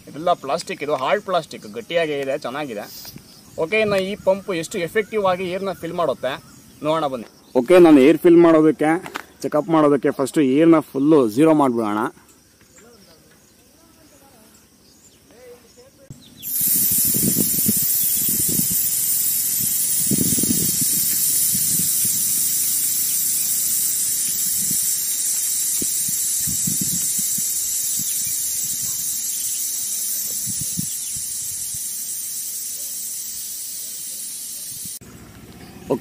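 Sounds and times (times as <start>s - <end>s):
air hissing from tyre valve: 2.8s - 3.5s, 16.4s - 35.0s.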